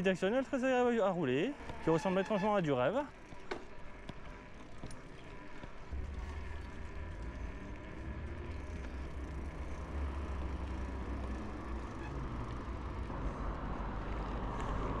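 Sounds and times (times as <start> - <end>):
bicycle tyre noise: 0.0 - 15.0
road traffic: 0.0 - 15.0.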